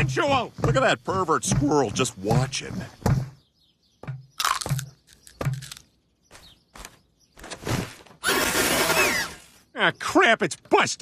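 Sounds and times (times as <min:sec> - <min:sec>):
cartoon crunching and munching: 0:04.4 - 0:05.9.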